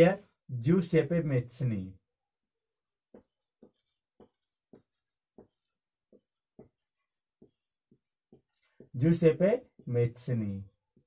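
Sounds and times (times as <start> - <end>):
marker writing on whiteboard: 2.5 - 11.0.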